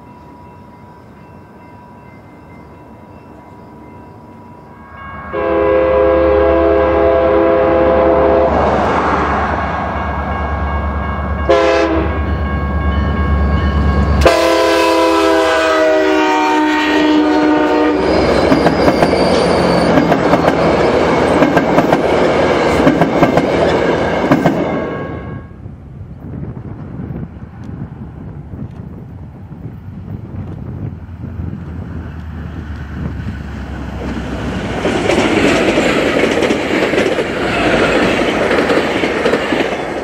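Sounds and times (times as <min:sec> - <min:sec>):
train horn: 0:04.8 - 0:09.2, 0:11.4 - 0:12.3, 0:14.0 - 0:19.8, 0:24.6 - 0:25.7
train wheels rumbling on rail: 0:05.3 - 0:40.0.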